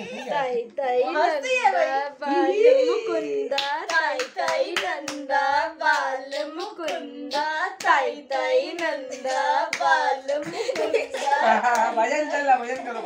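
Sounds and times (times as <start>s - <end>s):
hand claps: 3.5s - 5.2s, 5.8s - 12.0s
person chanting a clapping rhyme: 3.5s - 12.0s.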